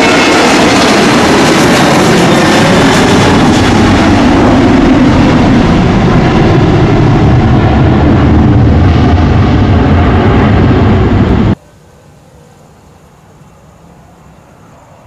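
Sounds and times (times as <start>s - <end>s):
jet engines roaring: 0.0s - 11.6s.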